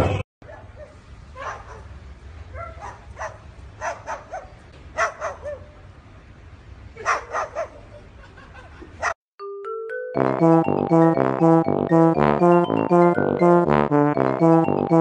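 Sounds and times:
cockatoo barking: 2.6 - 5.8, 7.0 - 8.0.

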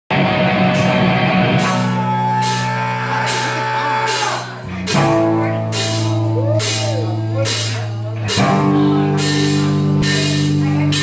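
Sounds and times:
live rock band playing: 0.1 - 11.0.

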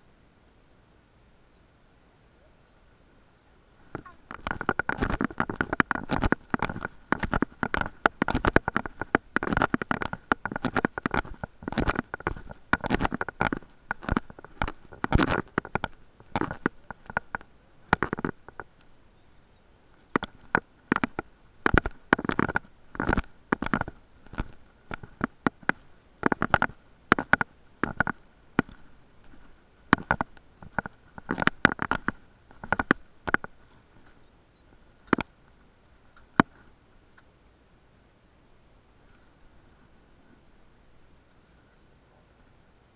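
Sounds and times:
crackling and rubbing on microphone: 3.8 - 19.1, 19.8 - 36.8.

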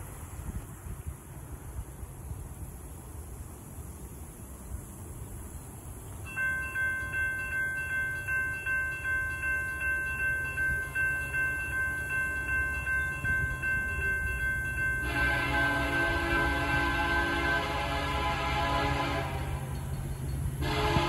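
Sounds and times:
railroad crossing bell ringing: 6.2 - 21.0
locomotive air horn: 15.0 - 19.8, 20.6 - 21.0.

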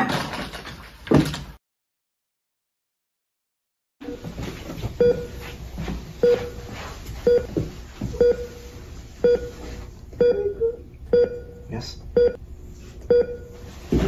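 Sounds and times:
heart monitor beeping: 4.0 - 5.6, 6.2 - 11.6, 12.2 - 12.4, 13.1 - 14.0
low room hum: 4.0 - 14.0.

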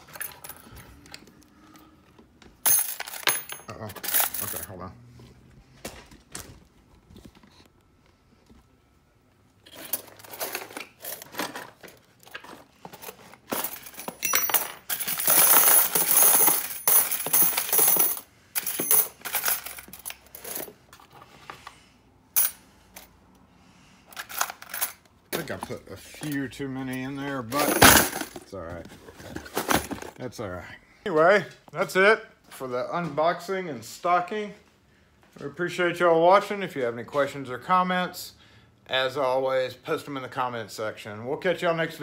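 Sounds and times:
metal keys clinking and rattling: 0.0 - 1.2, 2.6 - 4.7, 9.6 - 20.8, 24.1 - 25.1.

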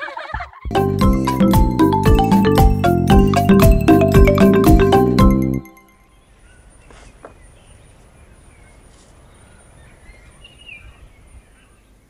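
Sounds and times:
marimba-like music: 0.7 - 6.0
faint outdoor ambience: 5.7 - 12.0.

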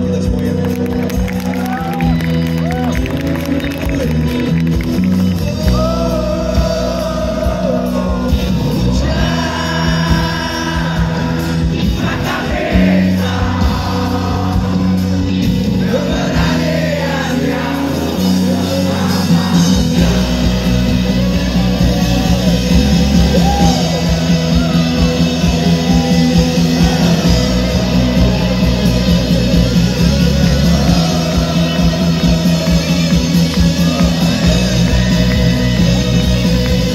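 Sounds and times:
live rock band playing: 0.0 - 36.9
person singing: 5.4 - 36.9.

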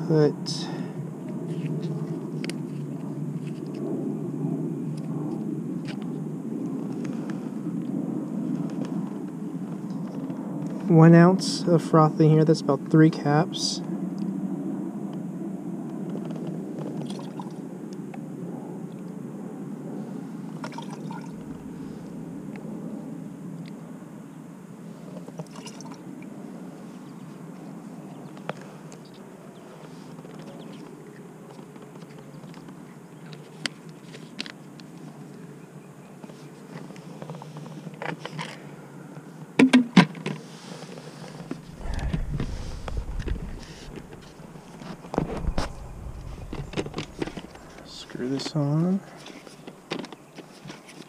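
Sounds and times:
soft handling noise: 40.4 - 51.0
low background hum: 41.5 - 49.4
low rumble: 41.6 - 48.5.

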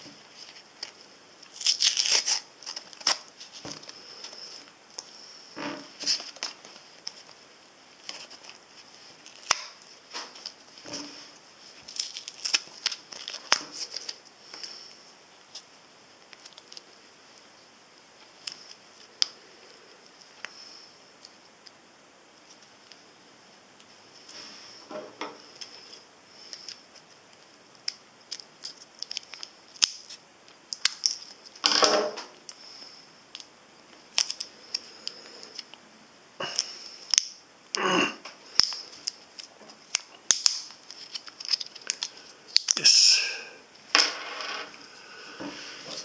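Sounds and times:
plastic packaging crackling: 0.3 - 5.1, 5.9 - 14.7, 38.5 - 42.8
plastic packaging clicking and crinkling: 11.8 - 14.7, 27.8 - 31.7, 34.1 - 35.8, 38.2 - 42.8.

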